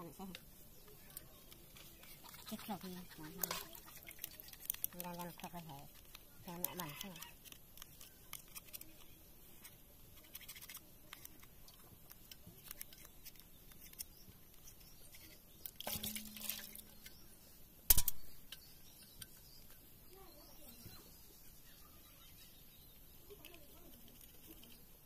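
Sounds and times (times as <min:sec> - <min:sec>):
scraping rustle: 0:01.1 - 0:17.2
sharp loud click: 0:17.9 - 0:18.4.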